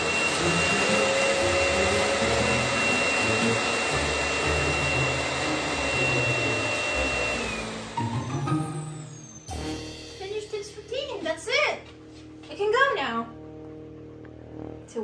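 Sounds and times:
vacuum dock suction motor whine: 0.0 - 9.7.

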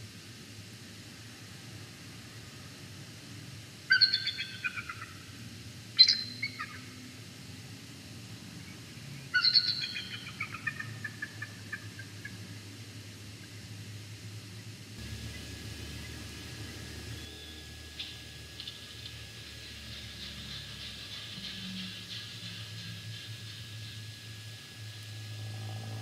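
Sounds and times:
eagle chittering calls: 3.9 - 5.2, 6.0 - 6.9, 9.3 - 12.4, 15.0 - 24.3.

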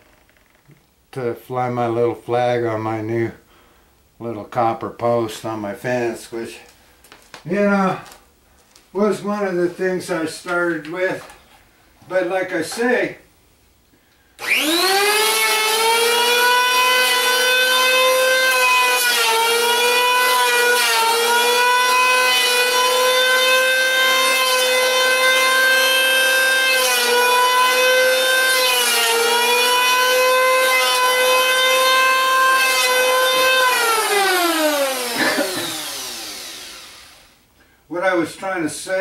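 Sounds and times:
circular saw cutting wood: 14.4 - 37.4.

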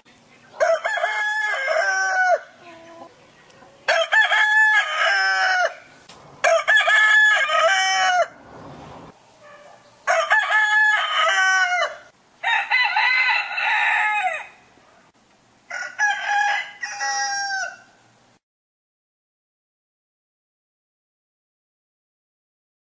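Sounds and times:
rooster crowing: 0.6 - 3.1, 3.9 - 8.4, 10.0 - 14.7, 15.7 - 18.0.

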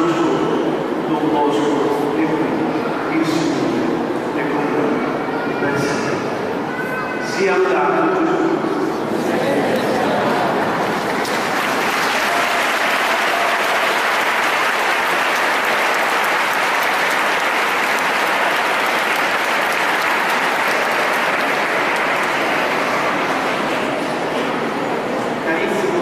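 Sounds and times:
crowd applauding: 9.7 - 25.1.

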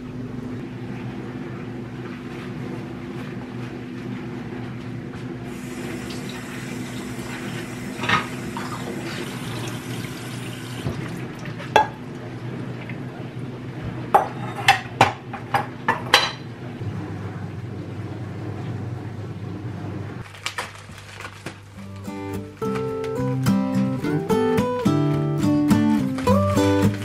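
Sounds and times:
running tap water: 5.4 - 13.0.

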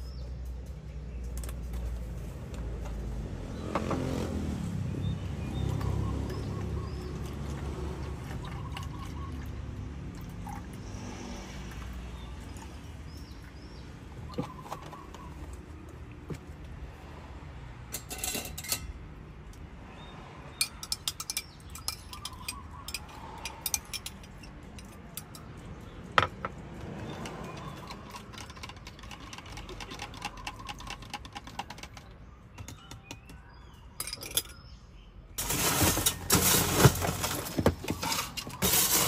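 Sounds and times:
metal spoon clinking in cup: 20.6 - 25.5, 34.0 - 34.6.

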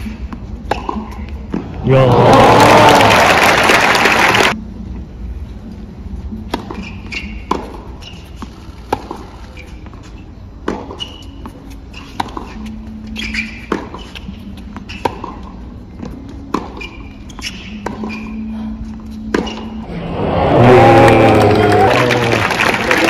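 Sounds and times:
tennis ball bounces: 0.0 - 1.8, 6.5 - 9.3, 10.6 - 11.5, 12.1 - 18.3, 19.3 - 19.8.

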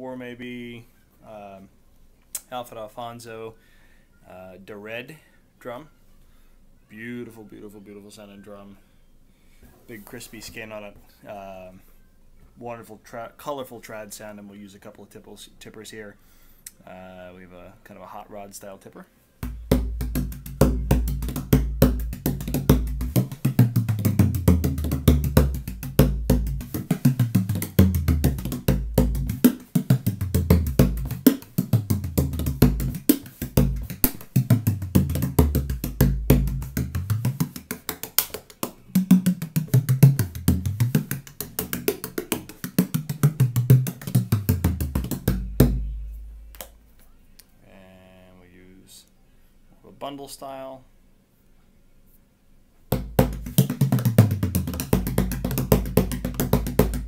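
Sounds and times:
frame drum played with rods: 19.4 - 46.4, 52.9 - 57.0.

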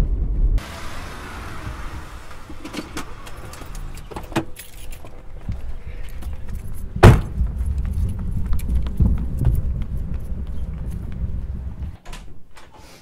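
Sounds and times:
car keys jangling: 3.1 - 5.3
car door slamming: 7.0 - 7.4.

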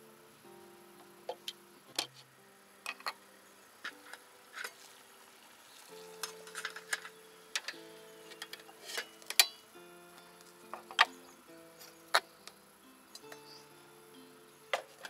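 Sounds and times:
guitar chords: 0.0 - 15.0
metal lid and cups clinking: 2.8 - 3.2, 5.9 - 9.6.

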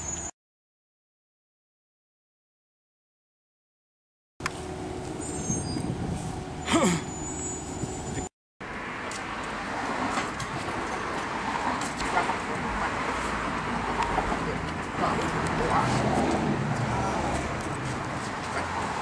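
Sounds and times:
passing cars: 4.4 - 19.0.

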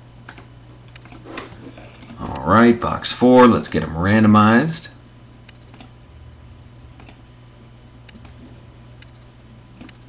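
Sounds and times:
steady low hum: 0.0 - 10.0
mouse and keyboard clicks: 0.3 - 1.2, 8.1 - 8.4, 9.0 - 10.0.

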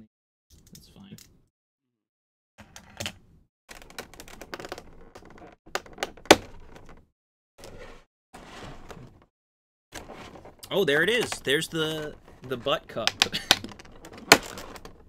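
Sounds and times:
plastic snapping: 13.0 - 15.0.

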